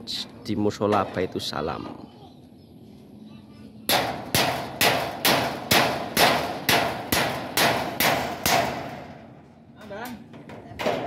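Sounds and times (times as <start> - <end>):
hammer blows ringing: 3.9 - 9.2.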